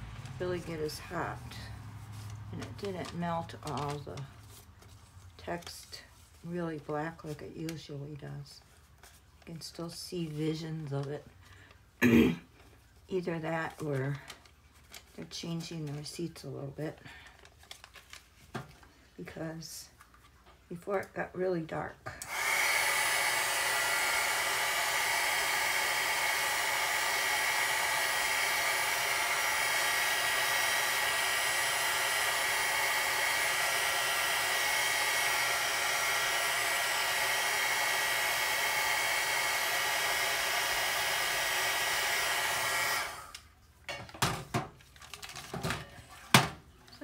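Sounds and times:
heat gun blowing: 0:22.2 - 0:43.5.

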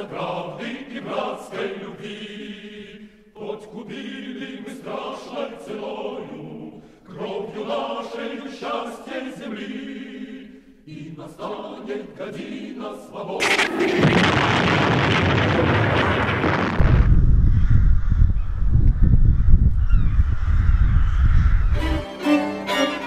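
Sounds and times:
choir singing: 0:00.0 - 0:15.2, 0:21.7 - 0:23.0.

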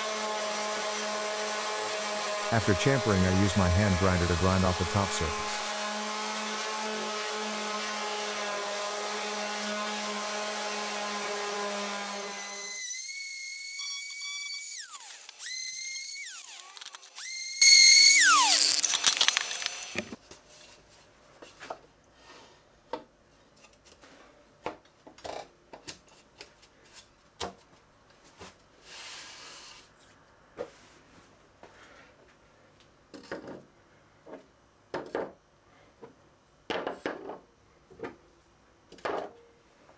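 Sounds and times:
orbital sander running: 0:01.7 - 0:07.6, 0:17.2 - 0:20.1.

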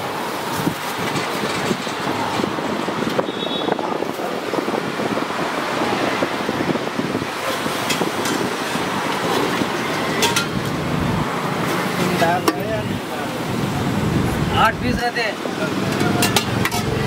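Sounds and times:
roadside traffic: 0:00.0 - 0:17.0
ladles clinking against pots: 0:09.3 - 0:10.7, 0:12.1 - 0:12.7, 0:15.9 - 0:17.0.

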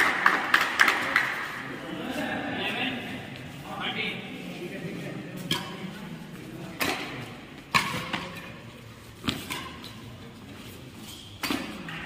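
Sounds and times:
racket hitting shuttlecock: 0:05.4 - 0:05.9, 0:06.8 - 0:08.6, 0:09.2 - 0:10.1, 0:11.3 - 0:12.0.

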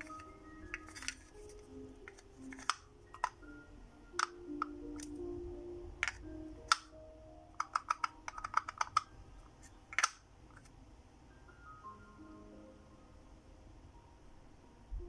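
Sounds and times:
hard doll pieces clicking: 0:00.0 - 0:03.4, 0:06.0 - 0:06.9, 0:07.6 - 0:09.1, 0:09.9 - 0:10.6
soft background music: 0:00.0 - 0:15.0.

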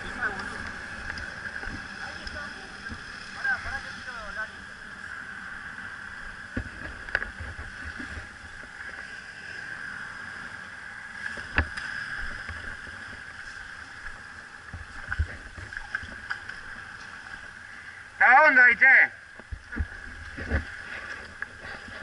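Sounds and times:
river water running over riffle: 0:00.0 - 0:09.4.

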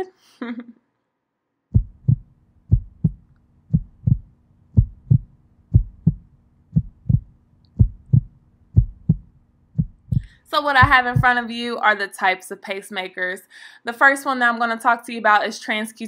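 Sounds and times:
heartbeat thumps: 0:01.7 - 0:11.4
faint steady hum: 0:01.7 - 0:11.8.

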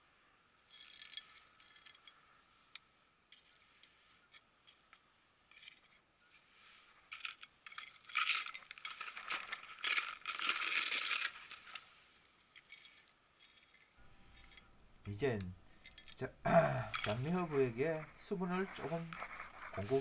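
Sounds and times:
soil grains rattling into plastic pot: 0:07.1 - 0:11.9, 0:16.9 - 0:20.0
metal trowel scraping soil: 0:16.9 - 0:20.0.

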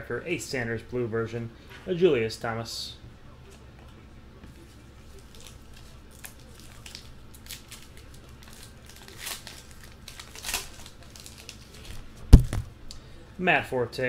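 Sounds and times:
card pack wrapper crinkling: 0:05.2 - 0:12.6.

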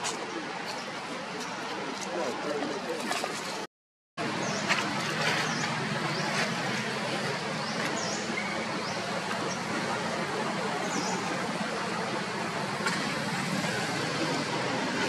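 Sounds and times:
outdoor background noise: 0:00.0 - 0:15.0.

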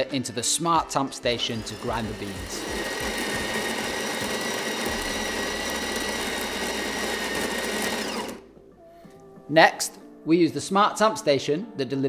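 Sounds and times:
coffee grinder whirring: 0:01.3 - 0:08.5.

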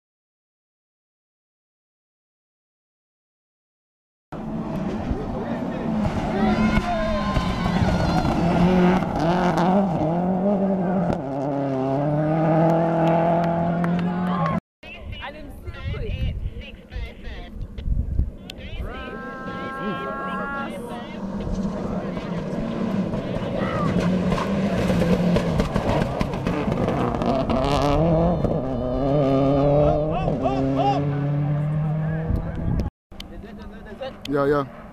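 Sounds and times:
rally car engine revving: 0:04.4 - 0:14.6, 0:19.1 - 0:32.9.

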